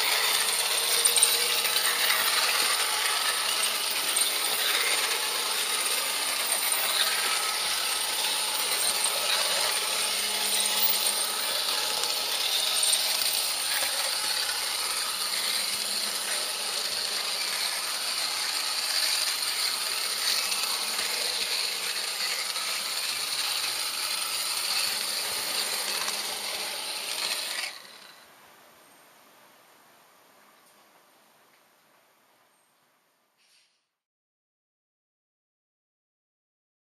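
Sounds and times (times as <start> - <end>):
model train rattling on track: 0.0 - 28.1.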